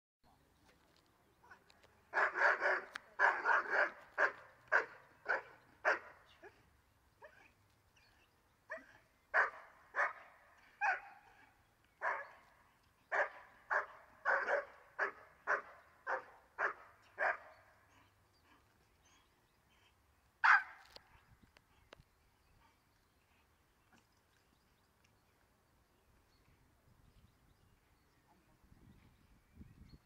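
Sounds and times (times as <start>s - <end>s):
dog barking: 2.1s - 6.2s, 8.7s - 11.4s, 12.0s - 12.4s, 13.1s - 17.5s, 20.4s - 20.8s.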